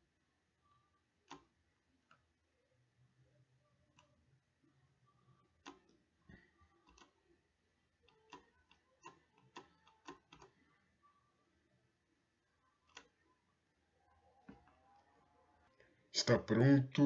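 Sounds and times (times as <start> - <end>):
faint computer mouse clicks: 6.8 - 7.2, 8.0 - 10.6, 12.9 - 13.1.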